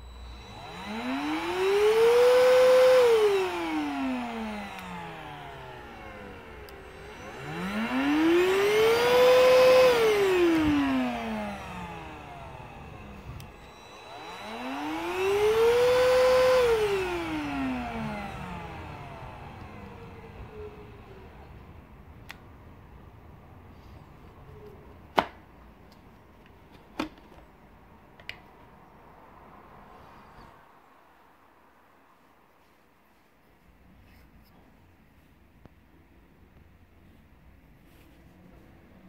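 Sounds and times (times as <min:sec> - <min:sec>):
vacuum motor whining: 0:00.0 - 0:22.7.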